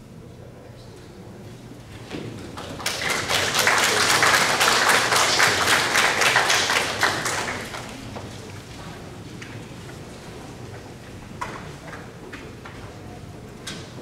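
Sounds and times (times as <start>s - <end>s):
audience applauding: 2.4s - 9.1s.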